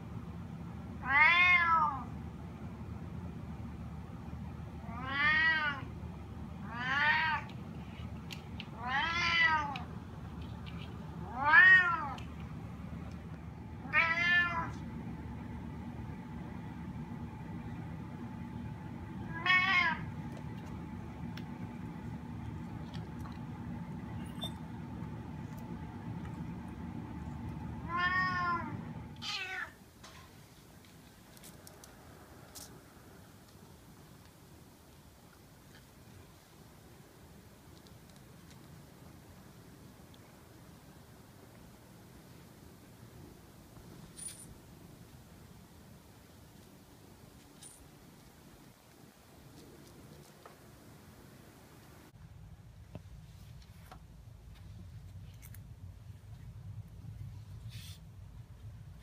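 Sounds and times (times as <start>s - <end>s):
cat meowing: 1.0s - 2.1s, 4.9s - 5.9s, 6.6s - 7.5s, 8.8s - 9.9s, 11.2s - 12.2s, 13.8s - 14.8s, 19.3s - 20.1s, 27.9s - 29.8s.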